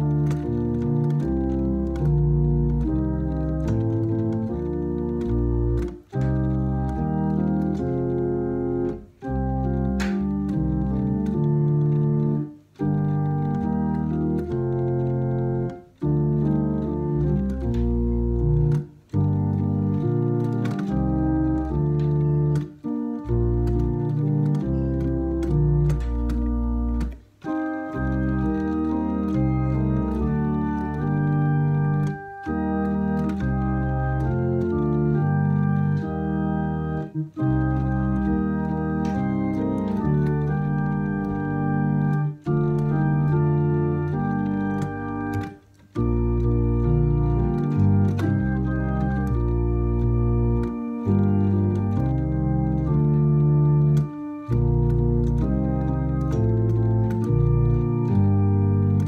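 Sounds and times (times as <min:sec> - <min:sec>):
electronic organ playing chords: 0:00.0 - 0:59.0.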